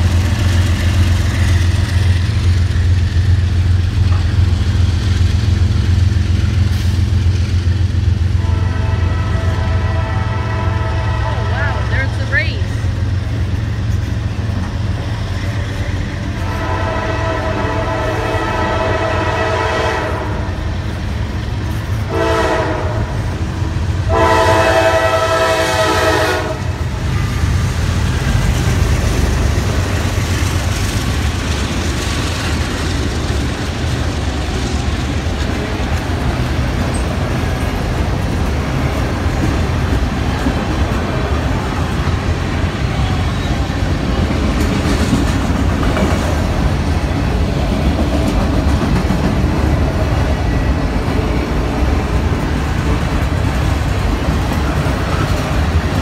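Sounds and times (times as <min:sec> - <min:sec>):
freight cars rumbling on rails: 0:00.0 - 0:56.0
locomotive air horn blasts: 0:08.4 - 0:12.2, 0:16.4 - 0:20.6, 0:22.1 - 0:23.2, 0:24.1 - 0:26.8.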